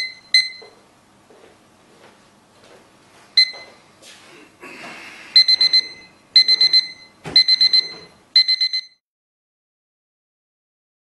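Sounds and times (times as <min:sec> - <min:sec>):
kitchen timer beeping: 0:00.0 - 0:00.6, 0:03.4 - 0:03.6, 0:05.4 - 0:09.0
timer alarm beeps: 0:00.0 - 0:00.8, 0:03.4 - 0:03.8, 0:05.4 - 0:09.0.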